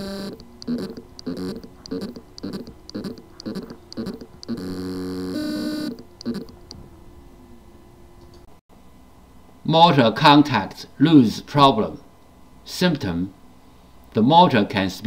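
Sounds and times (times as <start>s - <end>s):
hard drive buzzing in pulses: 0.0s - 8.1s
faint hum: 0.0s - 15.0s.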